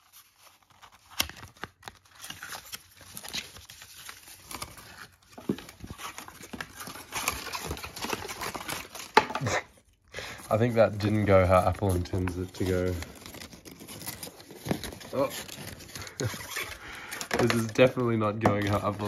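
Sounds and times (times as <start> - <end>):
cardboard packaging rustling: 0.0 - 19.0.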